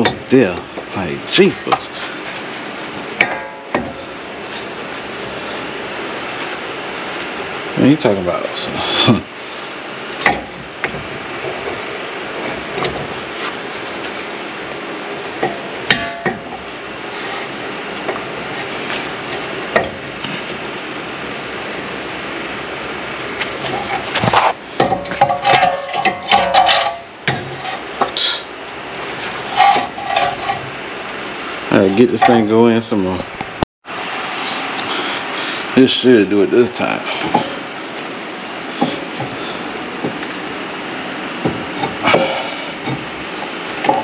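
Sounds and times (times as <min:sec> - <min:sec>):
steady hiss: 0:00.0 - 0:25.6, 0:26.6 - 0:44.0
metal clattering and scraping: 0:09.5 - 0:14.4, 0:15.3 - 0:20.6, 0:23.4 - 0:28.2, 0:28.9 - 0:30.8, 0:31.7 - 0:32.6, 0:41.4 - 0:44.0
metal clicks and knocks: 0:23.7 - 0:28.2.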